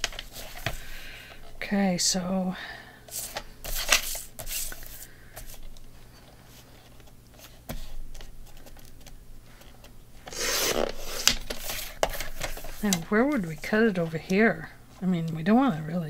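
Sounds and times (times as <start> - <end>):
paper rustling: 3.1 - 14.3
trimmer blade scraping: 10.3 - 11.3.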